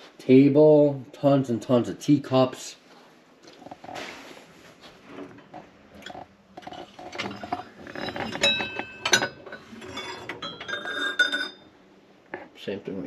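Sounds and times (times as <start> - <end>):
china teacups clinking: 6.6 - 11.6.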